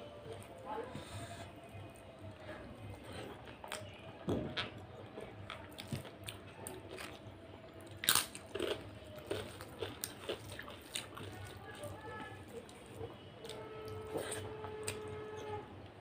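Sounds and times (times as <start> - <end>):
chewing soft food: 0.0 - 15.6
crunching potato chips: 4.6 - 15.0.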